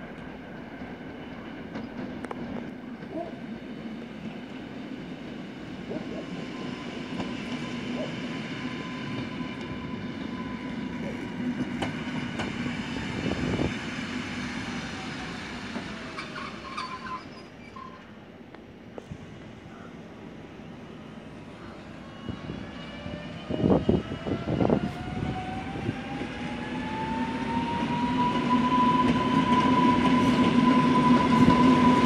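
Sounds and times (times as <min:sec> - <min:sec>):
electric train humming past: 0:00.0 - 0:32.0
train wheels clicking: 0:11.4 - 0:12.8
high wheel squeals: 0:16.1 - 0:18.1.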